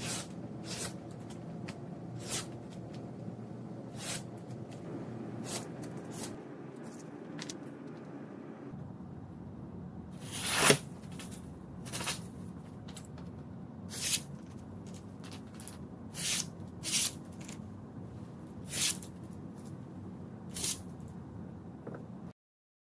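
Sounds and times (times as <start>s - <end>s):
knife slicing through paper: 0.0s - 1.0s, 2.2s - 2.5s, 3.9s - 4.3s, 5.4s - 6.4s, 10.2s - 12.2s, 13.9s - 14.3s, 16.2s - 17.6s, 18.6s - 19.2s, 20.5s - 20.8s.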